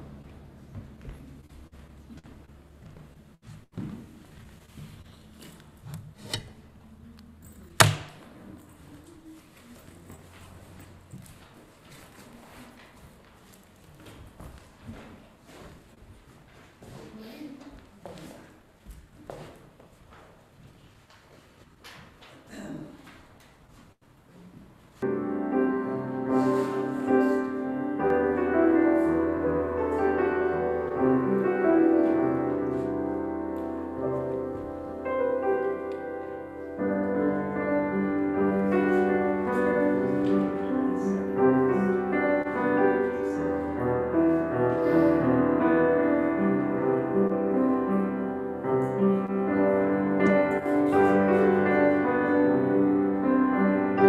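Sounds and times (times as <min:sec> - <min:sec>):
slow piano chords: 0:25.0 - 0:54.0.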